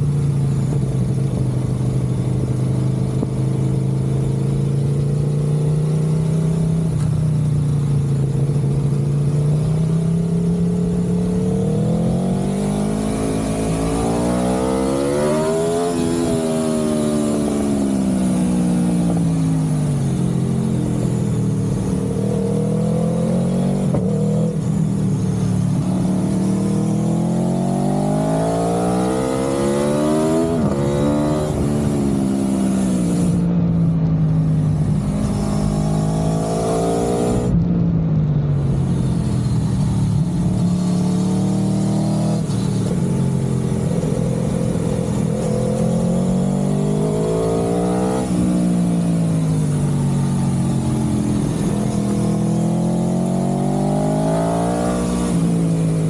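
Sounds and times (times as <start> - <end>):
vehicle engine running: 0.0 - 56.0.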